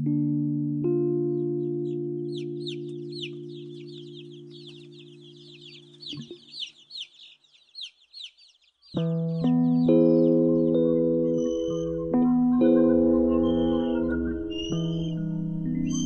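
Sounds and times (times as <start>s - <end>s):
high falling chirps: 1.3s - 16.0s.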